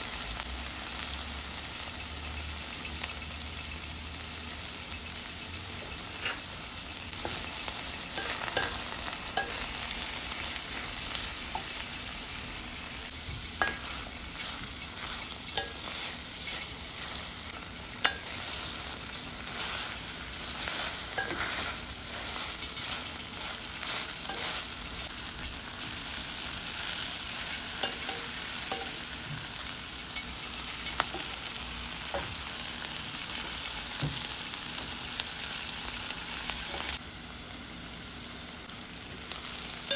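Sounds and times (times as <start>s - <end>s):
onions sizzling in oil: 0.0s - 39.9s
wooden spatula scraping pot: 18.0s - 25.1s.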